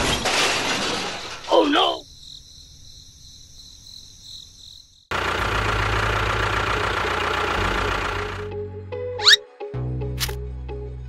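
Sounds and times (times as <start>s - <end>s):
tractor engine rumbling: 5.1s - 8.6s.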